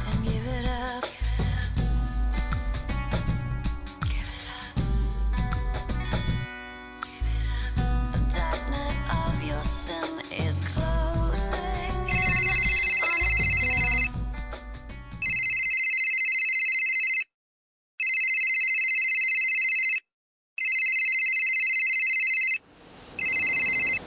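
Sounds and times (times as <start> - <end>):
background music: 0.0 - 15.5
phone ringtone: 12.1 - 14.2, 15.2 - 17.3, 18.0 - 20.0, 20.6 - 22.6, 23.2 - 24.0.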